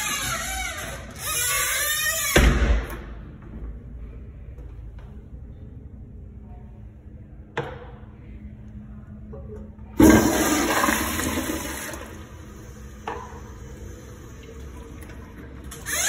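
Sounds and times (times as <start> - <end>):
toilet flushing: 10.0 - 16.0.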